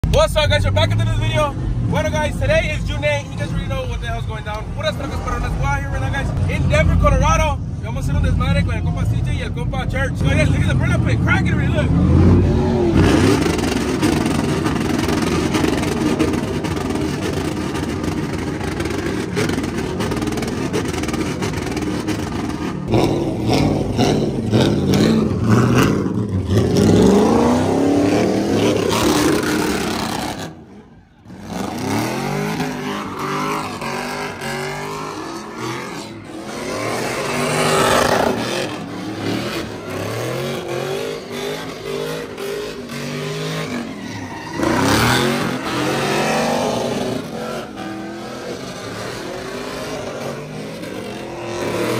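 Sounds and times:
pickup truck engine revving: 0:10.2 - 0:51.9.

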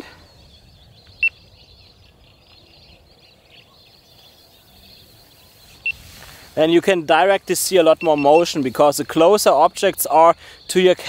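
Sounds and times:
faint high hiss: 0:04.4 - 0:08.8.

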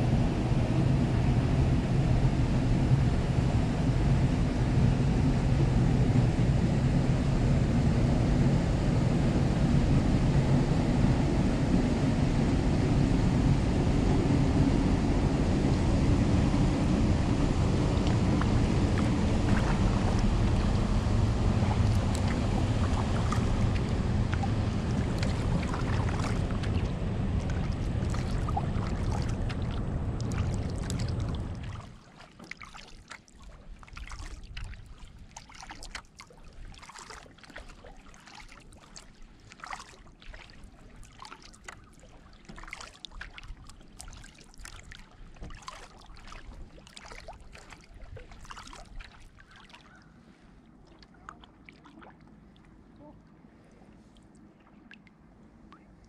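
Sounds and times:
wind buffeting the microphone: 0:00.0 - 0:31.9
water dripping off paddle blades: 0:21.5 - 0:50.1.

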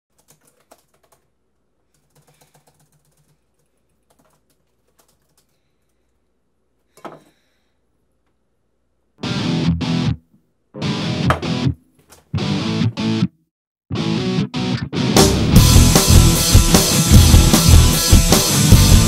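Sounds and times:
laptop keyboard typing: 0:00.1 - 0:01.3, 0:01.9 - 0:05.6.

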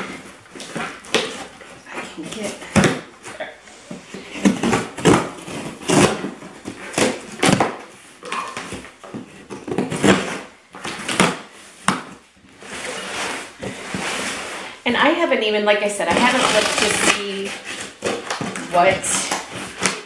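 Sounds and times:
cardboard scraping: 0:00.0 - 0:14.8, 0:16.1 - 0:20.0
packing tape ripping: 0:04.5 - 0:07.9, 0:16.1 - 0:20.0.

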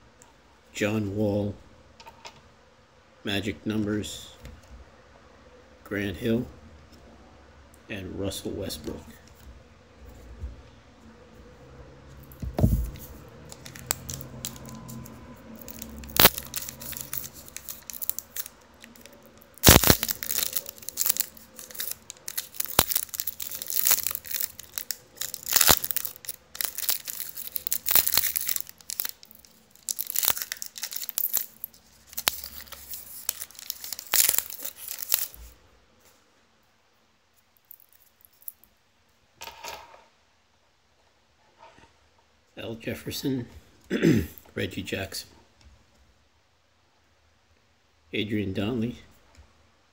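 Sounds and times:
foil wrapper tearing and crinkling: 0:13.5 - 0:35.4.

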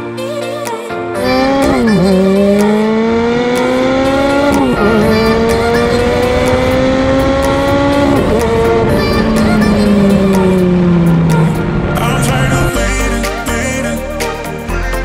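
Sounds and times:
car engine accelerating with upshifts: 0:01.2 - 0:12.8.

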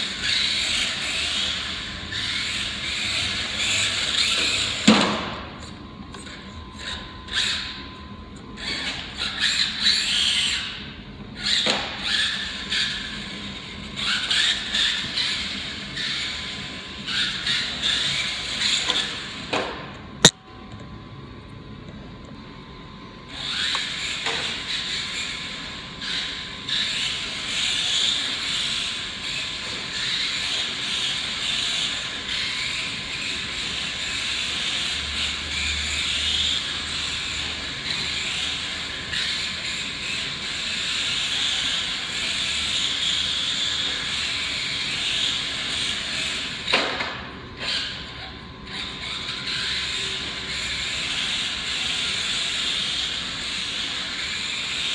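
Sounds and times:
toy car motor whine: 0:00.0 - 0:07.9, 0:08.6 - 0:19.5, 0:23.3 - 0:54.9.

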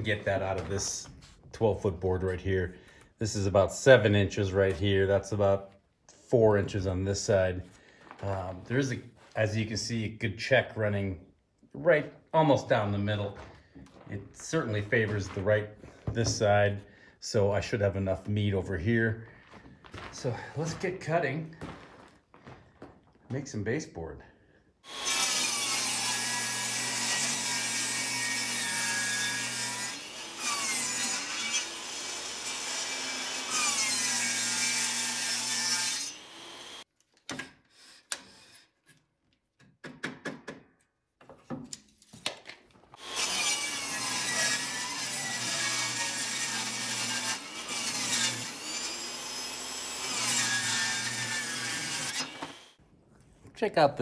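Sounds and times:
table saw ripping board: 0:42.2 - 0:52.7.

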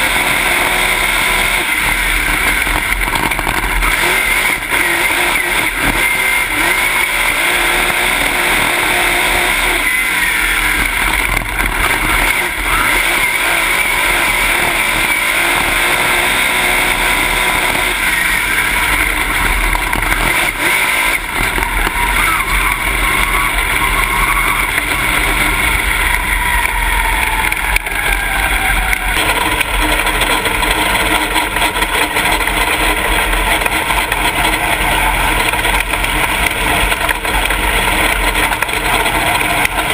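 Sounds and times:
race car engine running hard: 0:00.0 - 0:39.9.

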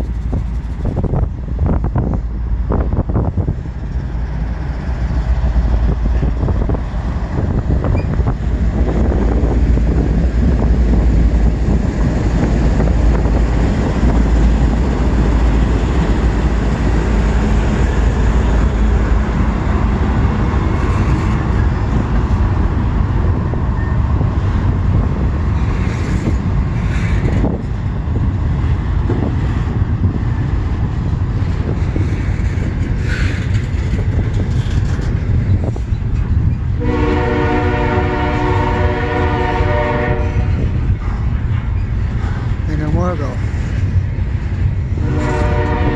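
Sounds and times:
diesel locomotives rumbling past: 0:00.0 - 0:45.9
locomotive air horn: 0:36.8 - 0:40.6, 0:45.0 - 0:45.9.

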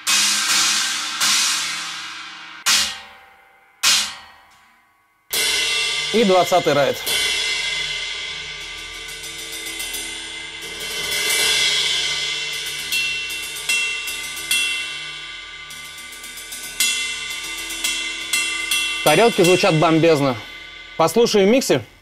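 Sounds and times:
cymbal ringing wash: 0:05.3 - 0:22.0
ride cymbal strokes: 0:05.3 - 0:22.0.

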